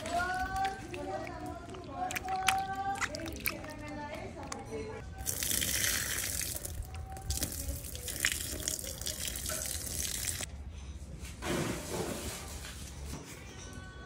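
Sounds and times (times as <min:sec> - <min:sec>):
vegetables splashing in a bowl of water: 0:00.0 - 0:10.5
water poured onto the ground: 0:05.2 - 0:10.5.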